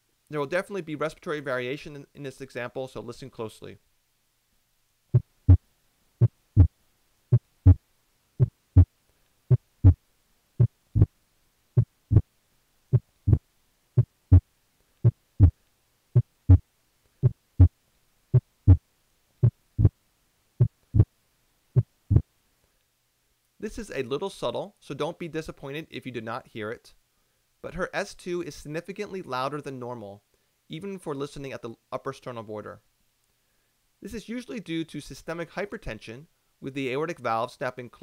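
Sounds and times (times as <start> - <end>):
heartbeat through stethoscope: 5.1 - 5.6, 6.2 - 6.7, 7.3 - 7.8, 8.4 - 8.9, 9.5 - 10.0, 10.6 - 11.1, 11.8 - 12.3, 12.9 - 13.4, 14.0 - 15.6, 16.2 - 16.6, 17.2 - 17.7, 18.4 - 18.8, 19.4 - 20.0, 20.6 - 21.1, 21.8 - 22.3.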